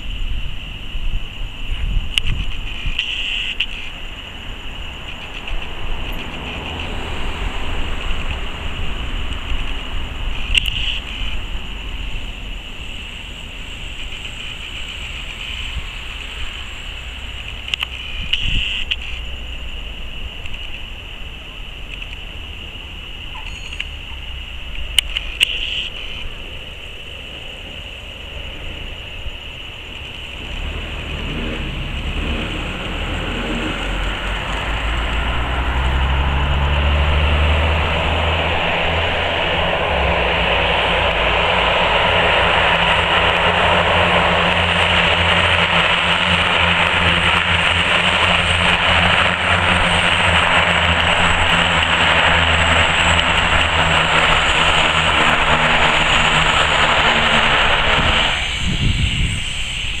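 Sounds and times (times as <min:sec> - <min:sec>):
propeller plane engine drone: 0:00.0 - 1:00.0.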